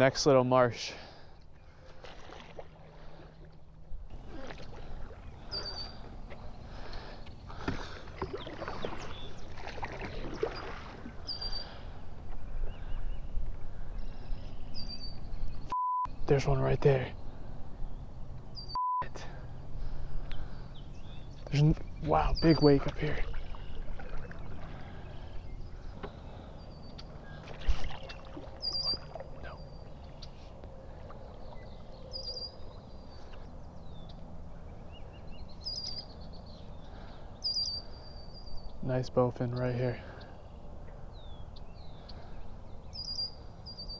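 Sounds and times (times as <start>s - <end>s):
paddle splashes and drips: 1.6s - 12.4s, 22.6s - 26.5s, 27.1s - 31.9s
songbird trilling: 5.4s - 7.6s, 20.7s - 30.4s, 31.4s - 34.2s, 34.8s - 43.9s.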